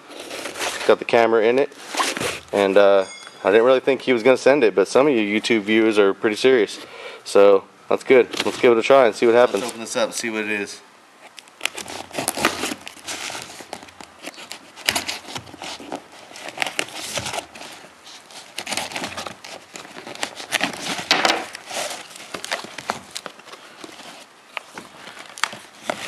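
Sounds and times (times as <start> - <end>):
tape and cardboard crinkling: 0.0 - 3.8, 8.1 - 10.1, 11.2 - 26.0
box flaps rustling open: 1.7 - 2.6, 11.6 - 26.0.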